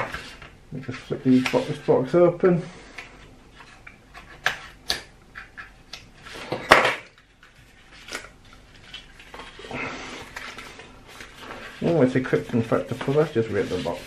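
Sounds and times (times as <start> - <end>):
cardboard rustling: 7.4 - 14.0.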